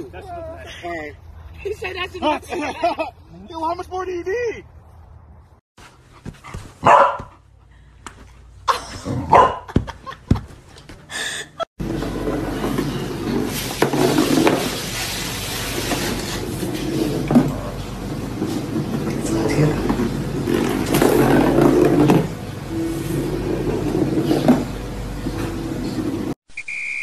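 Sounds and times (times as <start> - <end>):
dog barking and yipping: 6.7 - 7.4, 9.2 - 9.7.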